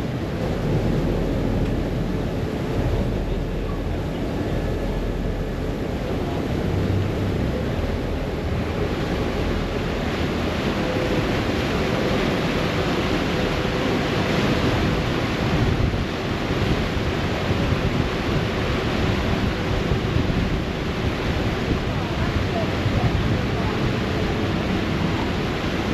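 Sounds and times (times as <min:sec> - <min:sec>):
boat wake churning: 0:00.0 - 0:25.9
low engine hum: 0:00.0 - 0:25.9
wind buffeting microphone: 0:00.0 - 0:25.9.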